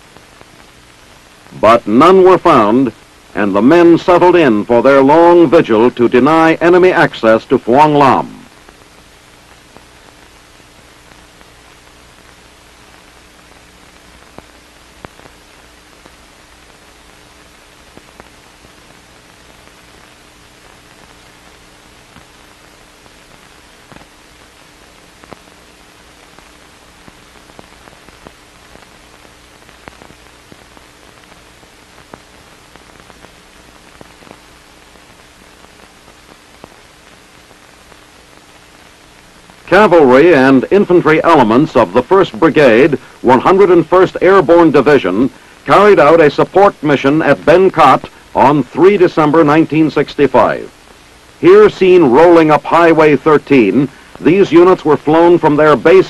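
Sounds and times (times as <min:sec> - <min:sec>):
faint steady hum: 0:00.0 - 0:56.0
film soundtrack hiss: 0:00.0 - 0:56.0
small clicks and pops: 0:08.5 - 0:39.6.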